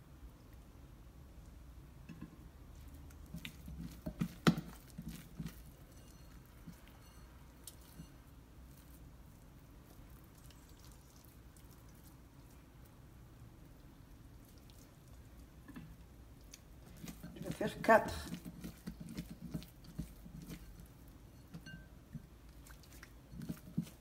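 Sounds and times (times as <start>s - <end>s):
wet dough squelches: 1.2s - 24.0s.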